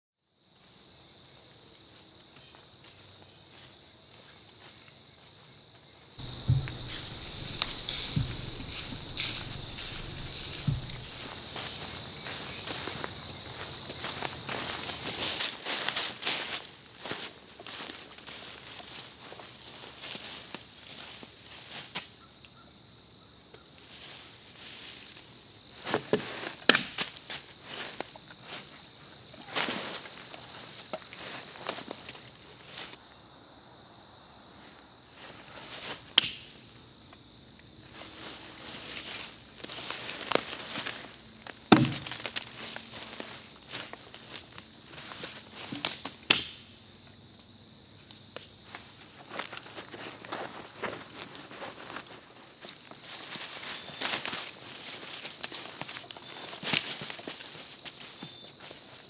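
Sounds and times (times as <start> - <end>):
insects chirring: 0.4 - 59.0
twig snaps: 6.2 - 11.2, 36.2 - 36.5, 45.8 - 46.6
low thump: 6.2 - 11.3
footsteps crunching dry leaves: 6.2 - 22.0, 37.9 - 46.0, 48.7 - 59.0.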